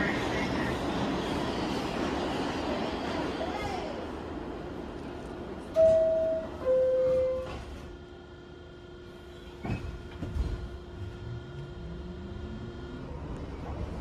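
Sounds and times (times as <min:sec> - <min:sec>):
subway door chime: 0:05.6 - 0:08.0
train motors whining: 0:09.3 - 0:14.0.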